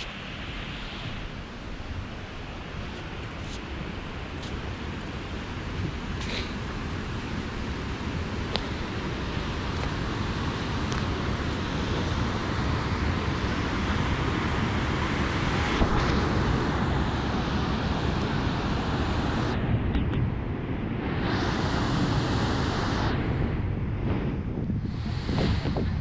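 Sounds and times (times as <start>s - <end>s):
creek water rushing: 0.0s - 19.5s
wind buffeting microphone: 0.0s - 26.0s.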